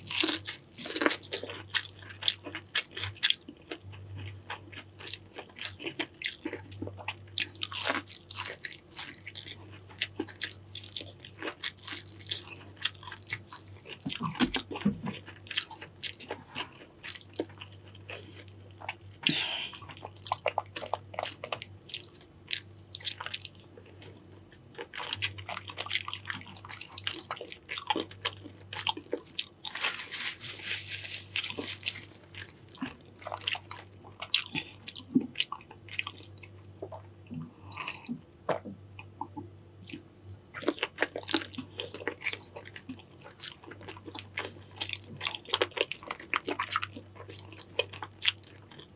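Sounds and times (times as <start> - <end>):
person biting and crunching food: 0.0 - 3.4, 24.8 - 36.2.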